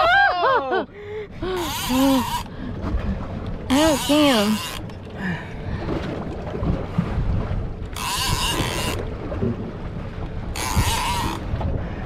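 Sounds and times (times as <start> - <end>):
boat engine low rumble: 0.0 - 12.0
water against hull: 0.0 - 12.0
wind buffeting microphone: 1.3 - 12.0.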